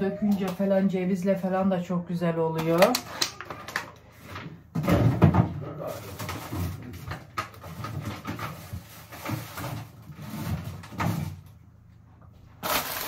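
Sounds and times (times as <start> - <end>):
packages knocking against fridge shelves: 2.6 - 11.5
packaging rustling: 12.6 - 13.0.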